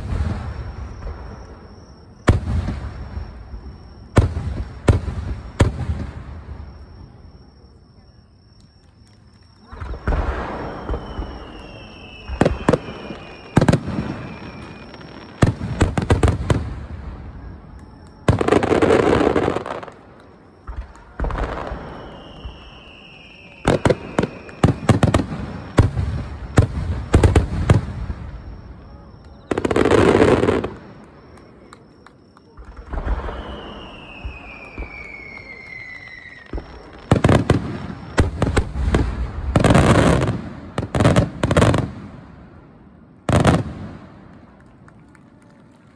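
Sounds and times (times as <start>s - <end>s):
fireworks bursting with sharp bangs: 0.0s - 45.9s.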